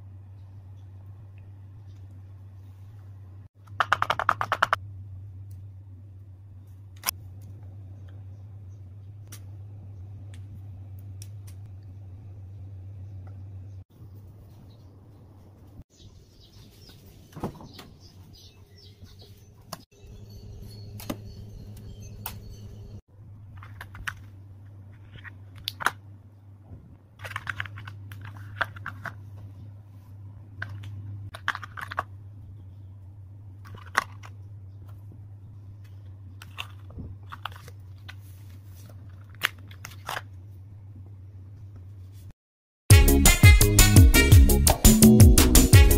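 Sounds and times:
steady low hum: 0:04.8 - 0:15.8.

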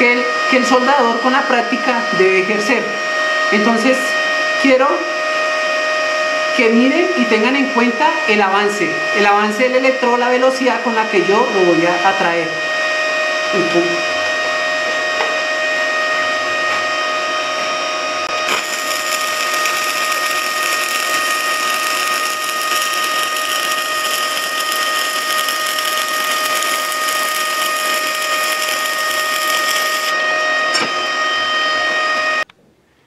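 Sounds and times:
steady high whine: 0:13.6 - 0:32.5
welding arc hissing: 0:18.3 - 0:30.2.

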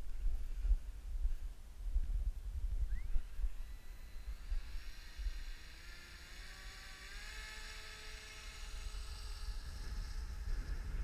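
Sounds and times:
wind rumbling on microphone: 0:00.0 - 0:11.0
propeller motor whine: 0:02.8 - 0:11.0.

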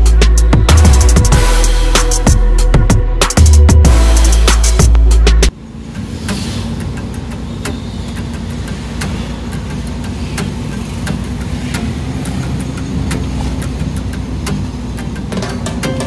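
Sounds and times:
vehicle engine and road rumble: 0:03.8 - 0:16.0.

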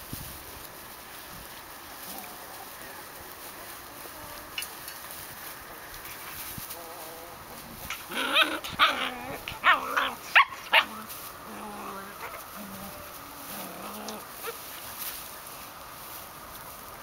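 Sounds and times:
dogs yelping and barking: 0:07.9 - 0:11.2, 0:11.8 - 0:14.9.

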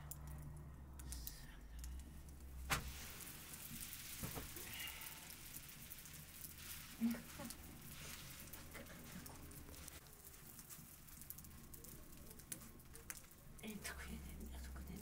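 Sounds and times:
wood fire crackling: 0:00.0 - 0:15.0
sharp crack: 0:01.8 - 0:13.7.

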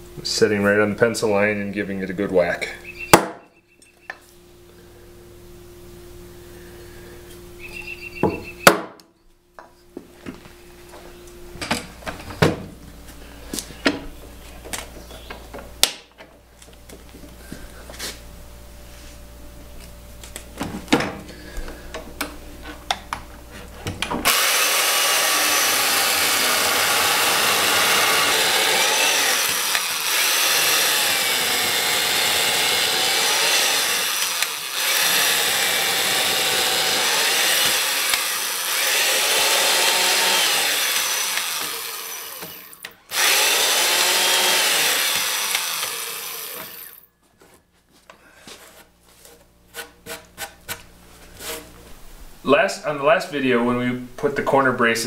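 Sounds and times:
chain mortiser cutting wood: 0:24.2 - 0:47.1.

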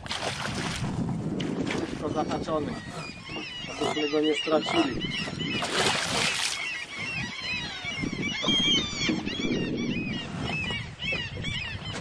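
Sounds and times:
fish thrashing and splashing: 0:00.0 - 0:02.0, 0:05.6 - 0:06.8
bird-like calls: 0:02.0 - 0:12.0.

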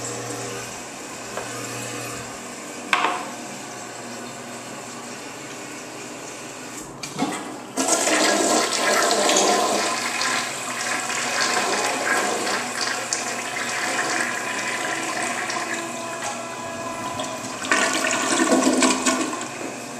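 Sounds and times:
toilet flushing: 0:00.0 - 0:19.9.

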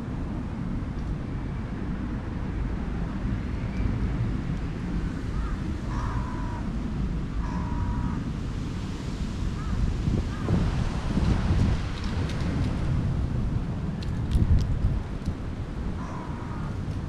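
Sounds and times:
wind buffeting microphone: 0:00.0 - 0:17.0
faint bird calls: 0:05.3 - 0:06.7, 0:07.4 - 0:08.2, 0:16.0 - 0:16.8.

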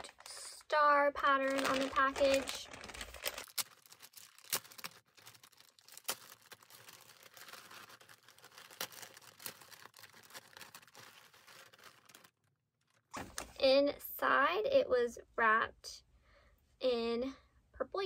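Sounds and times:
plastic mailer crinkling: 0:00.0 - 0:13.3.

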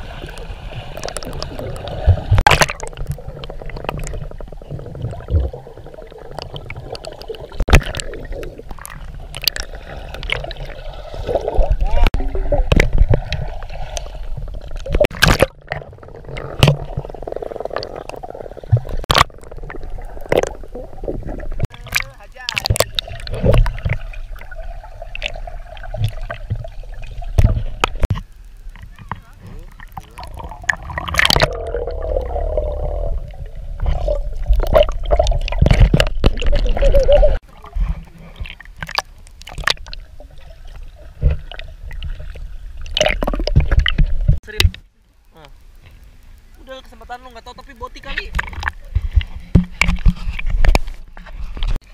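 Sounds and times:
underwater water movement and bubbling: 0:00.0 - 0:51.9
sharp clicks and knocks: 0:48.2 - 0:51.8.

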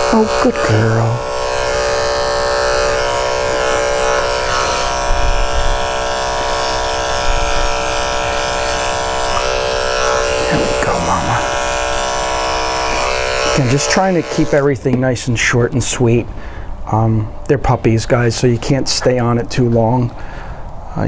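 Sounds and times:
electric clipper humming: 0:00.0 - 0:15.0.

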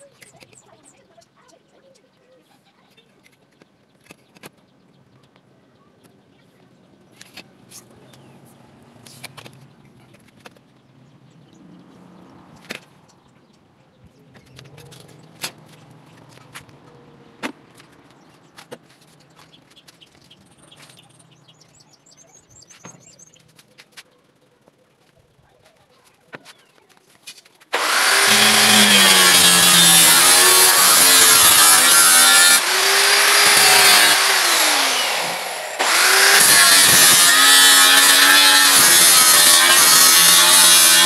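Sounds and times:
bird chirps: 0:19.3 - 0:23.6.

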